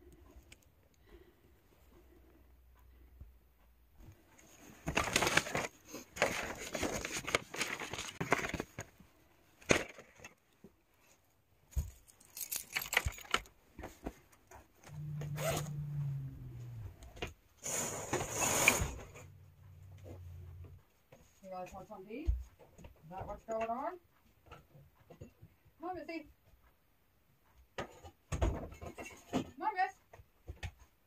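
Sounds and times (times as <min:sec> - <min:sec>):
paper rustling and crinkling: 0:04.4 - 0:10.3
low hum sliding lower: 0:14.9 - 0:17.2.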